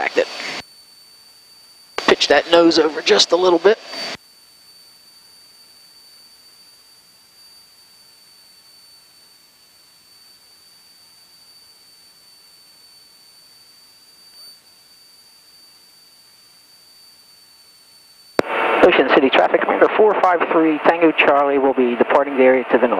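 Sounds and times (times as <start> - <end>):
high-pitched electrical whine: 0.0 - 22.9
intercom hiss: 18.4 - 22.9.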